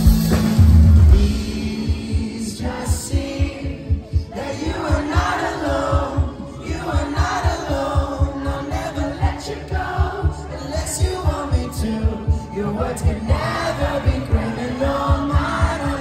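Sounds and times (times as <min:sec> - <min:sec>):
rock band playing: 0:00.0 - 0:02.4
driving kick-drum beat: 0:00.0 - 0:16.0
person singing: 0:01.1 - 0:16.0.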